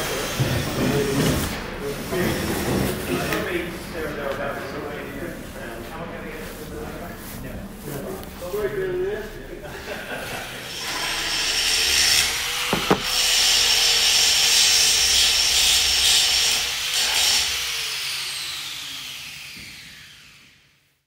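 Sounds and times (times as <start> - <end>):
power tool grinding: 10.6 - 19.5
sharp knocks: 12.7 - 13.2.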